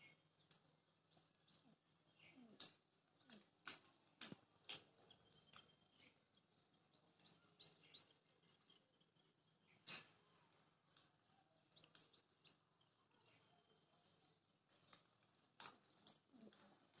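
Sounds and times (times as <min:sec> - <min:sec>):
small birds chirping: 0:00.0 - 0:17.0
sharp clicks: 0:02.6 - 0:05.8.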